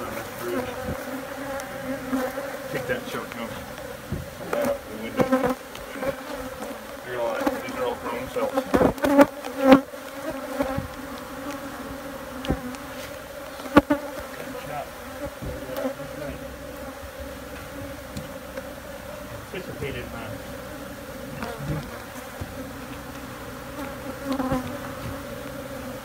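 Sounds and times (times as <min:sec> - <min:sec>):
honey bees buzzing: 0:00.0 - 0:26.0
sharp knocks: 0:04.1 - 0:05.4.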